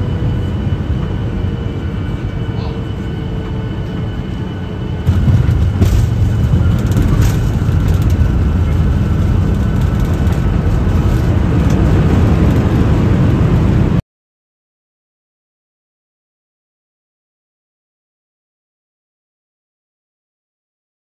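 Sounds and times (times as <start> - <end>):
airliner engine rumble: 0.0 - 14.0.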